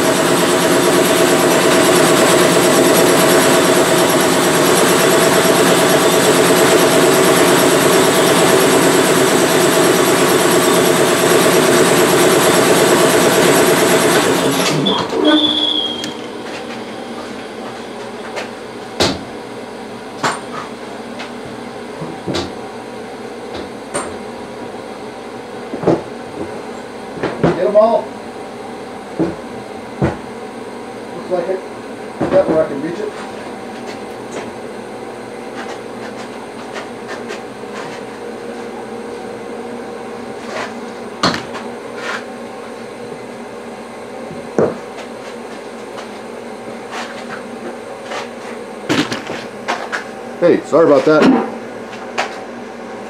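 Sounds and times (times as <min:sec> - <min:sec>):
blasting cabinet humming and hissing: 0:00.0 - 0:53.0.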